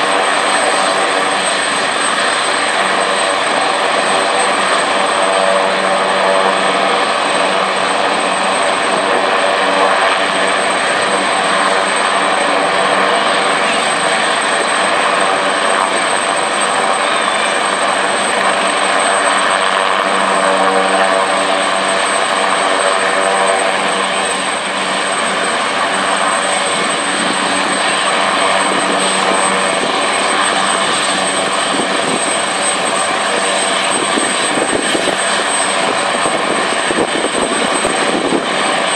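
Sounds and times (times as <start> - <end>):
helicopter rotor turning: 0.0 - 38.9
high turbine whine: 0.0 - 38.9.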